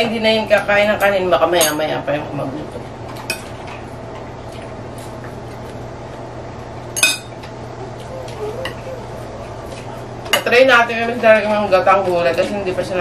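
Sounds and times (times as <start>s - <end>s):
steady low hum: 0.0s - 12.1s
tableware clinking: 7.0s - 7.4s.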